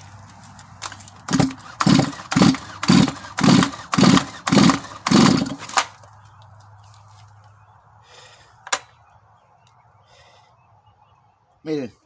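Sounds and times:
chainsaw pull-cord cranking: 0.2s - 6.1s.

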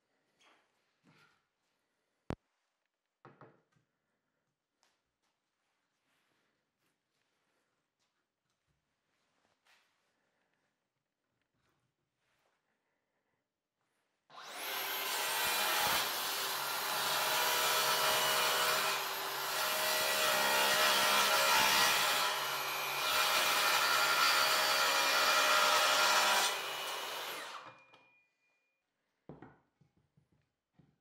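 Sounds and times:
track saw cutting wood: 14.3s - 27.9s.

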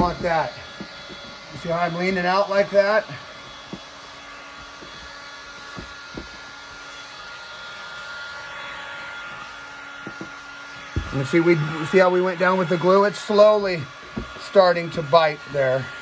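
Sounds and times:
heat gun blowing with faint whine: 0.0s - 16.0s
soft knocks: 10.0s - 11.2s, 14.1s - 14.4s.

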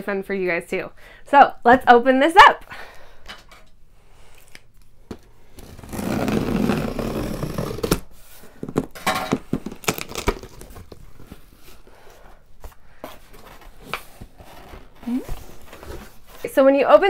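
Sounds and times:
tape ripping: 5.6s - 8.1s, 9.6s - 11.0s.

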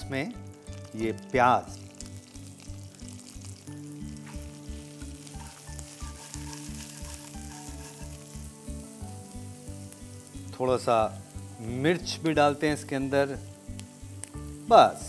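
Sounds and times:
onions sizzling in oil: 0.0s - 15.0s
background music with low beat: 3.7s - 11.9s
spatula stirring in pan: 4.2s - 9.6s.

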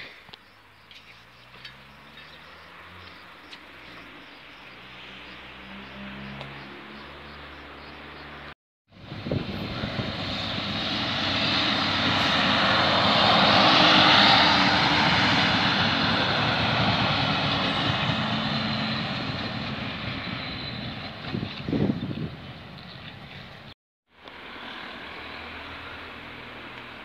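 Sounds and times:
wheels rumbling on track: 0.0s - 27.0s
railcar engine passing: 9.0s - 23.7s.

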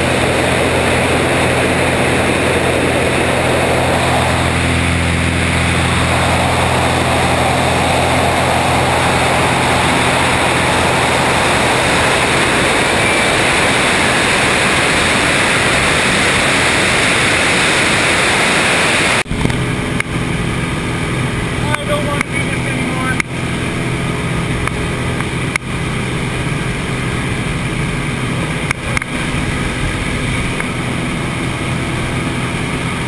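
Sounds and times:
wind rushing over camera: 0.0s - 20.3s
propeller plane engine drone: 0.0s - 33.0s.

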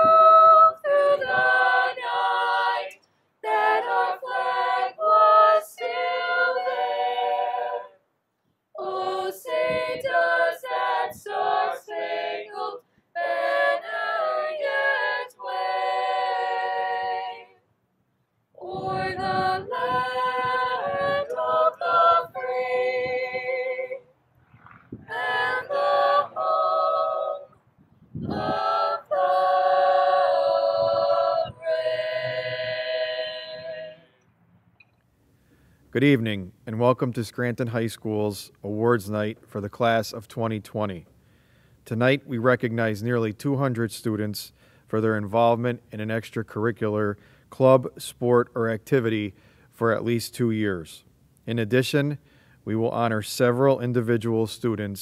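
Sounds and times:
unaccompanied voices singing: 0.0s - 8.0s, 8.7s - 17.6s, 18.6s - 24.1s, 25.0s - 34.2s.

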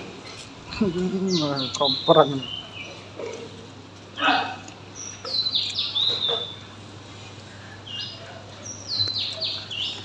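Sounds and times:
small bird chirping: 0.2s - 3.5s, 4.9s - 6.8s, 7.6s - 10.0s.

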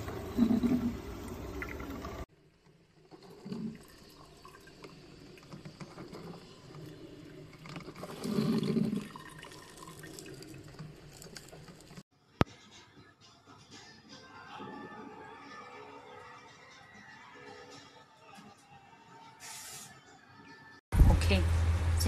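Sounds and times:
coffee maker gurgling and dripping: 0.0s - 12.1s.

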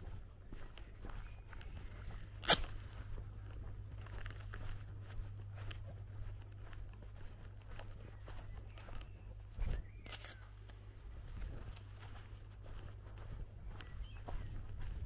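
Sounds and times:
footsteps through long grass: 0.0s - 15.0s
sharp crack: 2.4s - 2.8s.

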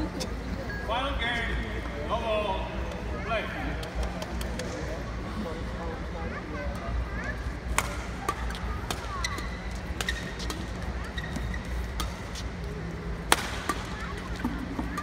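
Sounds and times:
low hum of hall: 0.0s - 15.0s
rackets hitting shuttlecock: 7.7s - 15.0s
shoe squeaks on court: 9.2s - 11.9s.

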